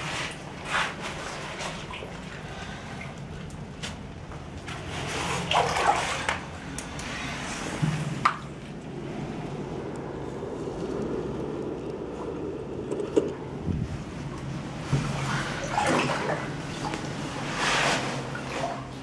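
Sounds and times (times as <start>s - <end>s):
water sloshing around legs: 0.0s - 9.6s, 14.2s - 19.0s.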